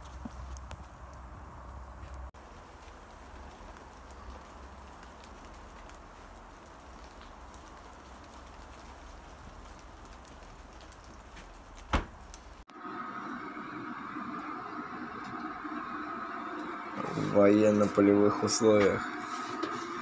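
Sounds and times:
small ticks: 0.0 - 12.6
light rain patter: 0.0 - 12.7.

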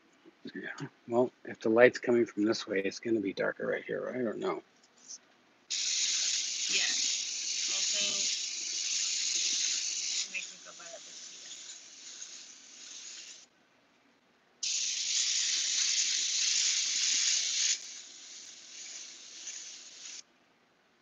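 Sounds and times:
airbrush hissing: 5.7 - 13.5, 14.6 - 20.2.

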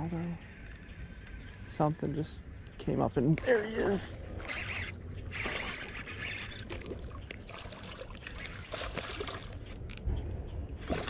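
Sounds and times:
wind rumble on microphone: 6.4 - 11.0.

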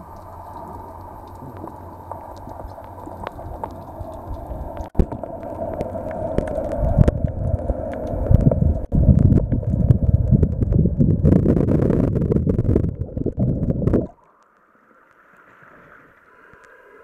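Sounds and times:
underwater sloshing bubbling hiss: 0.0 - 10.4
low rumble: 0.0 - 14.2
small clicks and crackles: 0.0 - 17.0.

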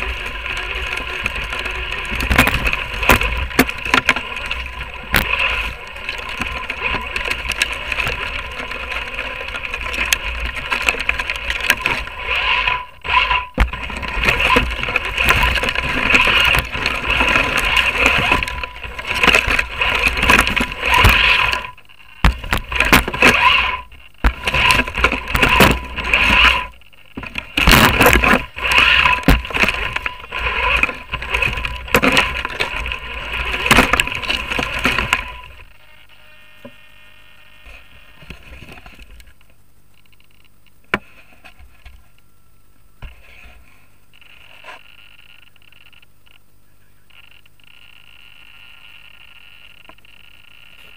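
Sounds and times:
small electric motor whining: 0.0 - 39.2.

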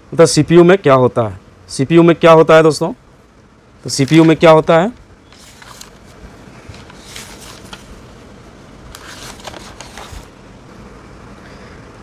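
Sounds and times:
low steady background hum: 0.0 - 12.0
rustling and handling noises: 3.9 - 10.4.

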